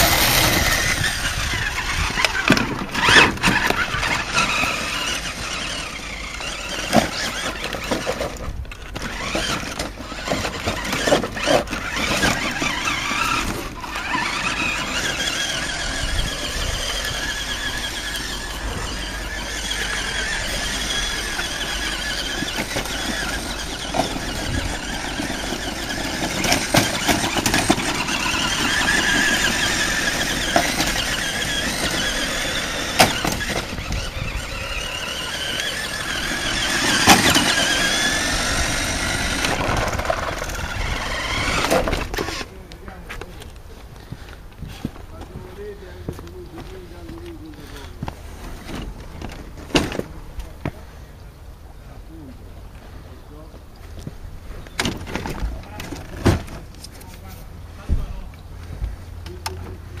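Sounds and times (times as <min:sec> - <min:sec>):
toy truck motor whining: 0:00.0 - 0:42.6.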